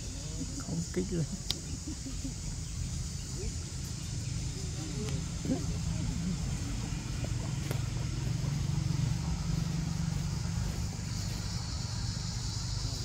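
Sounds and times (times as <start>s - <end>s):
high drone of insects: 0.0s - 13.0s.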